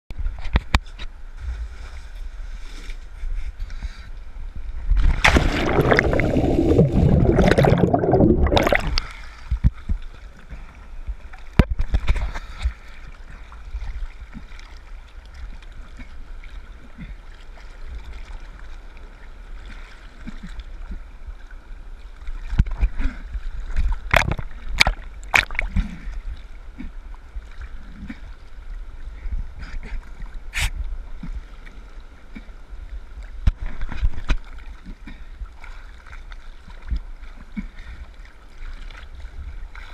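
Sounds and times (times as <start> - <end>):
water sloshing and gurgling: 0.1 - 39.9
diver splashing into water: 5.0 - 9.0.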